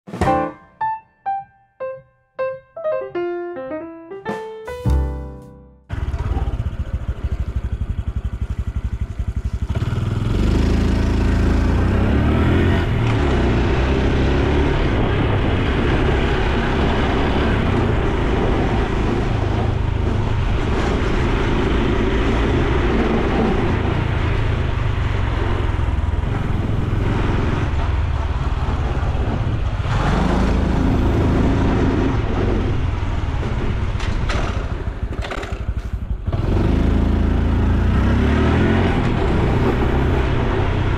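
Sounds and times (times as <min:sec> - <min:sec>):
motorbike engine running: 0:05.9 - 0:12.5.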